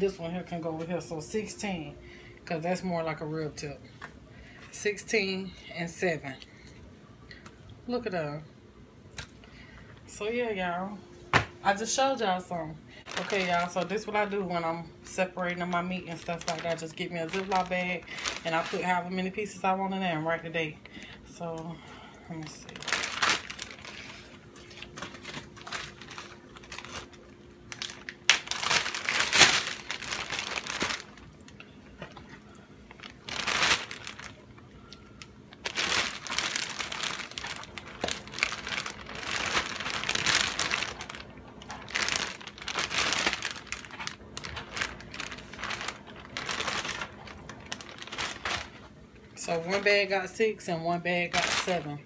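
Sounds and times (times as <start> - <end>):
plastic bag crinkling: 13.0 - 19.8, 22.3 - 50.2, 51.2 - 52.0.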